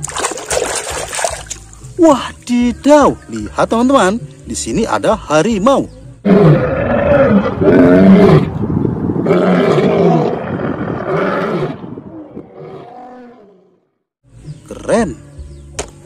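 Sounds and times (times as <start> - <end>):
tiger growls: 6.2 - 13.8
tiger roaring: 6.2 - 13.8.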